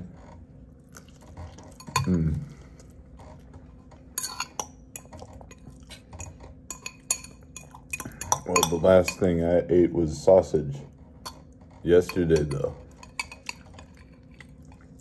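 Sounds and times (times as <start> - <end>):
utensil clinking against dish: 1.5 - 2.3, 4.0 - 9.5, 11.2 - 15.0.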